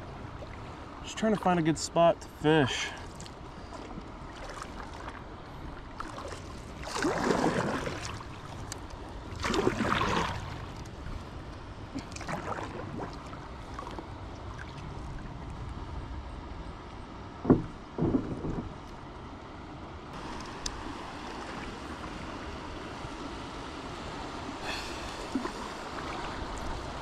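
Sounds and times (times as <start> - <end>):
low water wash: 0.0 - 27.0
paddle swishing through water: 2.4 - 15.8, 20.1 - 27.0.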